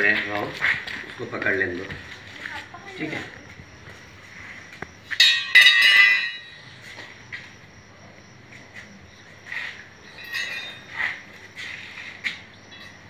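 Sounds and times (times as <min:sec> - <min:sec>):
hard objects clinking and clattering: 0:05.2 - 0:06.5.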